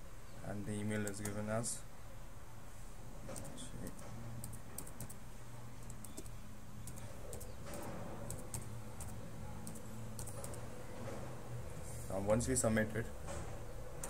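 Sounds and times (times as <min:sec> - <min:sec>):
keyboard keystrokes clicking: 0:05.8 - 0:10.6.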